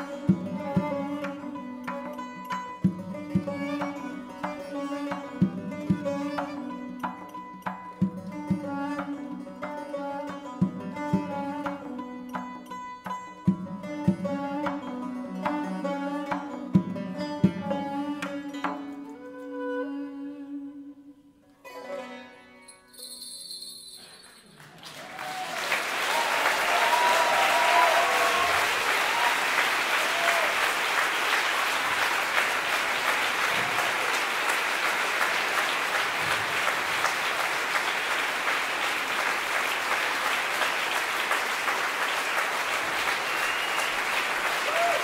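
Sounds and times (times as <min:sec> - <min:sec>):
traditional ensemble music: 0:00.0 - 0:22.8, 0:25.8 - 0:45.0
audience applause: 0:24.5 - 0:45.0.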